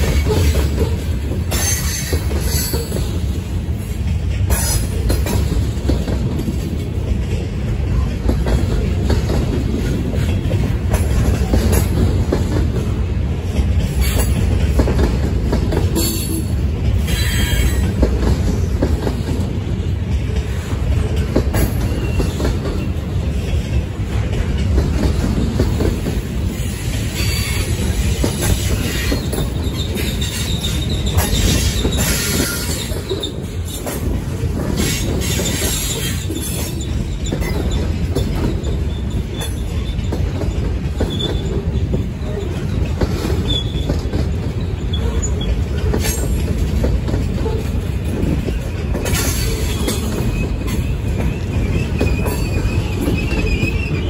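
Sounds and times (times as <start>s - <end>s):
train wheels rumbling on rails: 0.0s - 54.0s
wheels clacking over rail joints: 0.0s - 54.0s
high wheel squeals: 28.5s - 33.8s, 49.2s - 54.0s.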